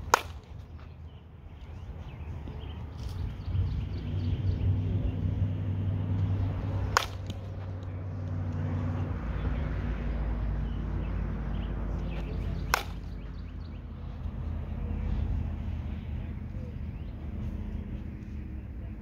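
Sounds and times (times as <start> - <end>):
bat striking softball: 0.0 - 0.6, 6.8 - 7.9, 12.6 - 13.2.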